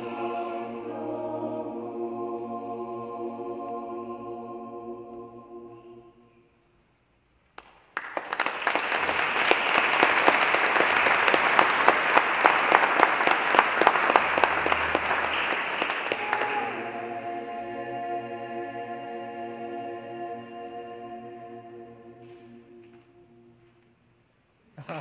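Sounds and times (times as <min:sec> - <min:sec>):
choir singing held chord: 0:00.0 - 0:06.6, 0:09.3 - 0:24.0
audience applause: 0:08.0 - 0:16.9.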